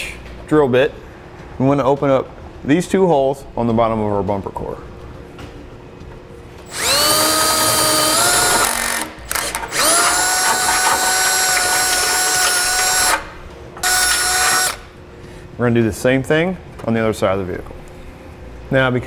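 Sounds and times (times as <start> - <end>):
cordless drill whining: 6.7 - 13.2, 13.8 - 14.8.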